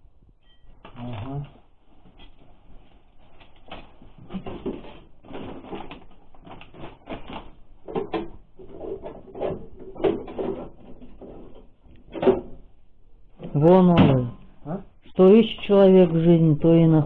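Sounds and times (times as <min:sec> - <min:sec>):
rustling of gloves and bags: 0:00.5 - 0:10.0.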